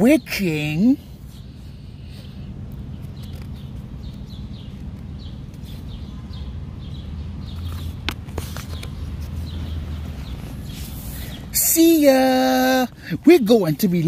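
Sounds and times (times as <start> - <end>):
bird chirping: 0.0 - 14.0
steady low hum: 0.0 - 14.0
paper pages turning: 2.6 - 5.9, 7.6 - 11.2
sharp paper clicks: 2.6 - 5.9.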